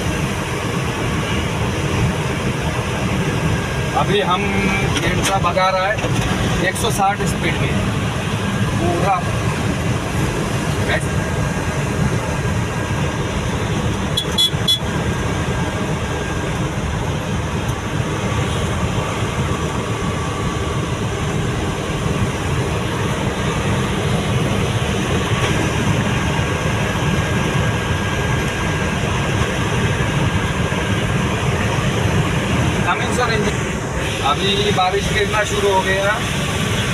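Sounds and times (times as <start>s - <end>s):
engine tyre and wind drone: 0.0s - 36.9s.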